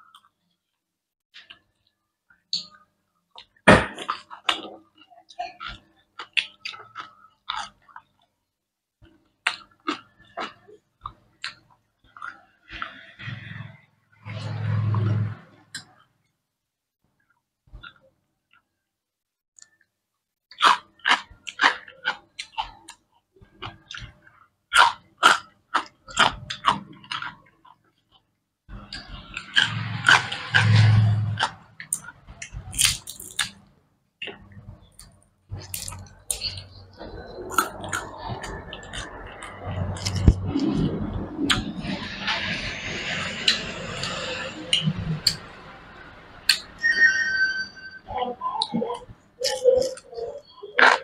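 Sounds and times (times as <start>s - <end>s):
chewing and mouth smacking: 3.4s - 8.3s, 9.4s - 13.0s, 20.5s - 30.8s, 31.4s - 33.6s, 34.2s - 42.4s, 48.6s - 51.0s
sharp eating crunches: 5.5s - 8.1s, 9.4s - 13.7s, 20.5s - 33.6s, 34.2s - 45.5s.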